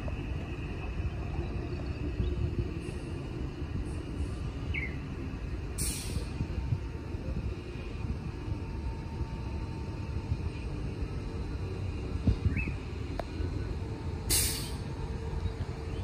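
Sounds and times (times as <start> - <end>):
electric train rumbling: 0.0 - 16.0
air brake hiss: 5.8 - 6.4, 14.3 - 14.9.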